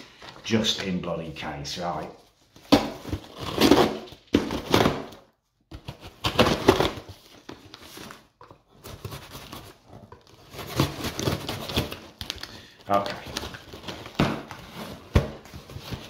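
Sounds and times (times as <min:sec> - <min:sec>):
packing tape and cardboard ripping: 0:02.7 - 0:05.2, 0:09.0 - 0:12.7.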